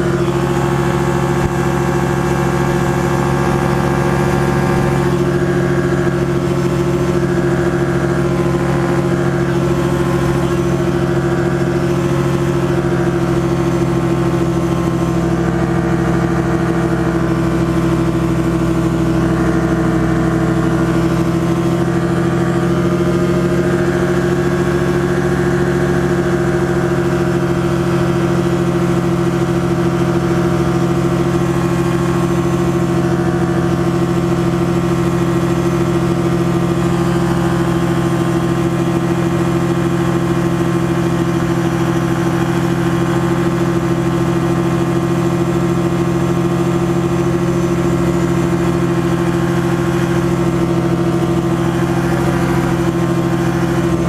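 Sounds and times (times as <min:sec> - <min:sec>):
light aircraft engine drone: 0:00.0 - 0:54.0.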